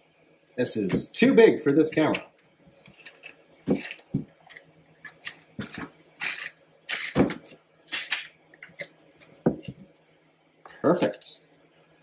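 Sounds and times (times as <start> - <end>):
plastic parts scraping and knocking: 2.0 - 9.8.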